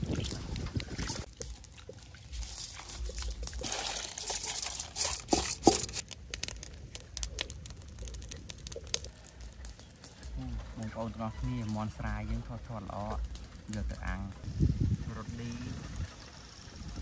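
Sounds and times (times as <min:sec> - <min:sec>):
rice sloshing in steel bowl: 0:02.3 - 0:06.0.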